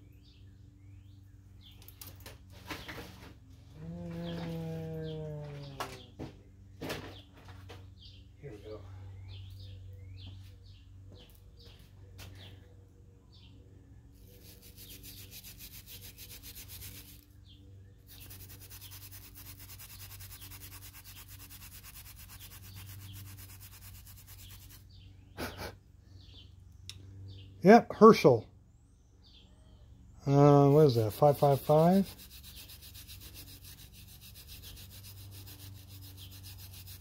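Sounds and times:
birds chirping: 0.0s - 37.0s
wire brush scrubbing steel: 14.3s - 17.2s, 18.1s - 24.8s, 30.6s - 37.0s.

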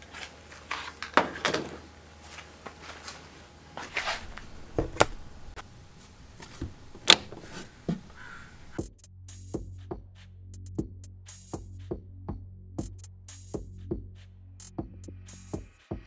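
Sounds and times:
handling rustle: 0.0s - 8.7s.

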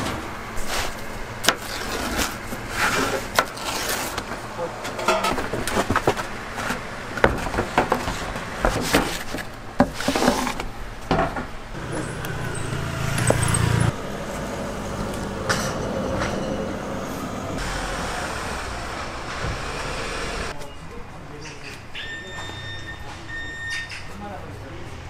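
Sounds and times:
street noise: 0.0s - 25.0s
vehicle engine running: 11.7s - 20.6s.

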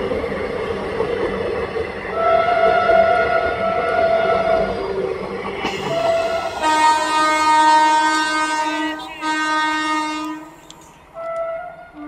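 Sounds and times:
clatter of passing train coaches: 0.0s - 12.0s
short low horn note: 5.7s - 10.6s
train horn blast: 5.7s - 12.0s.

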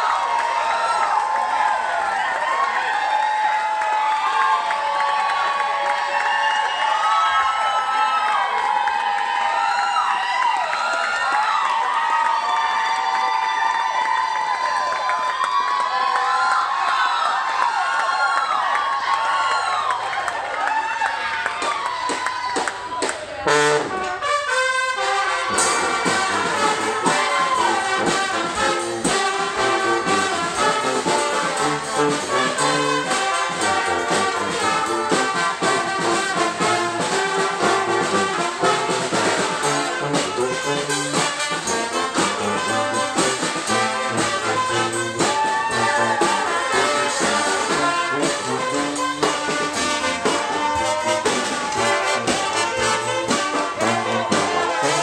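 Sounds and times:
brass band playing: 23.4s - 55.0s
marching drums: 24.9s - 55.0s.

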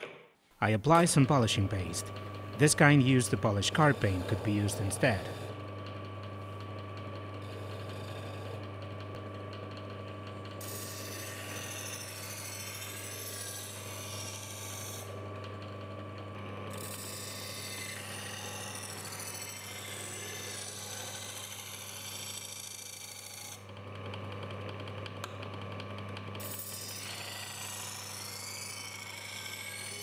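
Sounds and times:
lathe motor humming: 1.1s - 22.5s.

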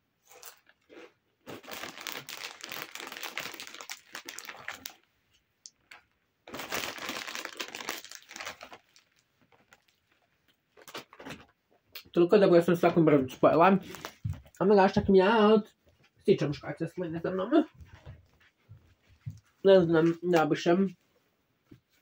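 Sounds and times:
chip bag crinkling: 0.3s - 5.1s, 6.5s - 10.1s.

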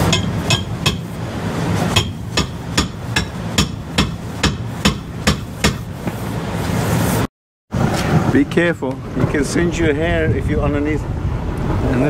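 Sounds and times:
hammer strikes ringing: 0.0s - 1.1s, 1.9s - 5.8s.

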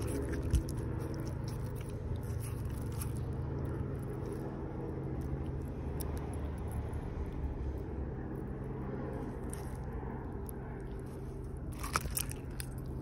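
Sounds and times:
low background rumble: 0.0s - 13.0s.

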